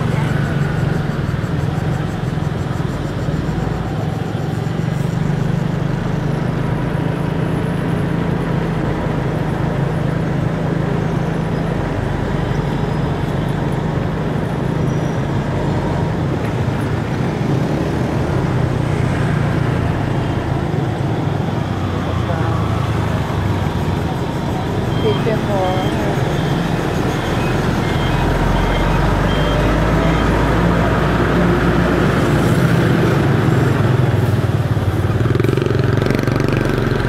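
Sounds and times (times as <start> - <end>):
city traffic: 0.0 - 37.0
scooter engine running: 31.6 - 37.0.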